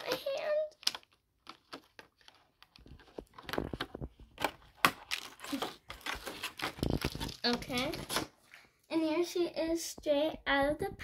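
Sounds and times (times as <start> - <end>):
plastic packaging crinkling and tearing: 0.0 - 8.5.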